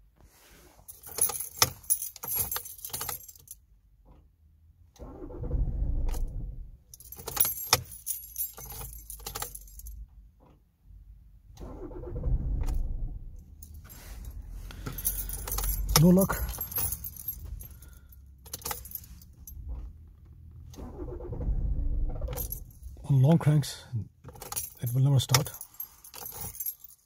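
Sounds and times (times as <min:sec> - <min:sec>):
keys jangling: 0:00.8 - 0:03.6, 0:06.9 - 0:10.0, 0:13.4 - 0:19.7, 0:22.3 - 0:23.0, 0:24.3 - 0:27.0
starter cranking engine: 0:11.6 - 0:13.1, 0:20.6 - 0:22.6.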